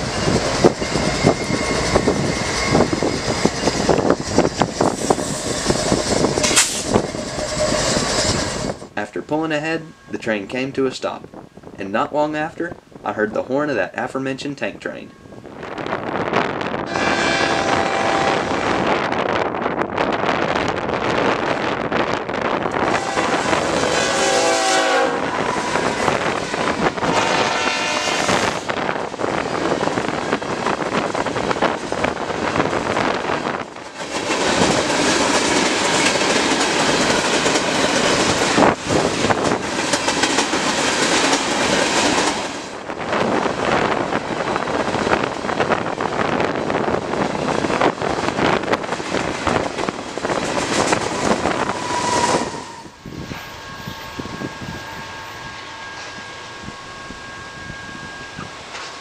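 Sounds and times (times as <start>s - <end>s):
train wheels rumbling on rails: 0.0s - 9.1s, 15.1s - 59.0s
locomotive horn blasts: 16.8s - 18.8s, 22.7s - 28.8s, 51.2s - 59.0s.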